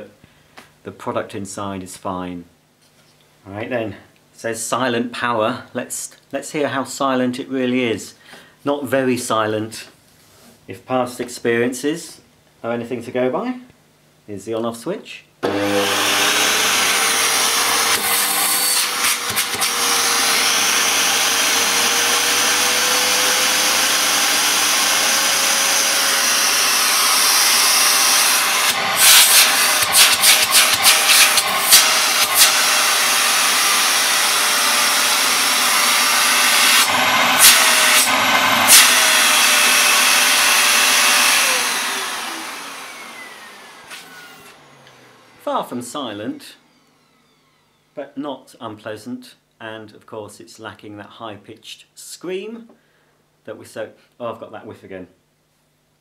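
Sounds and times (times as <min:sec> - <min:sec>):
vacuum cleaner running: 0:15.4 - 0:48.0.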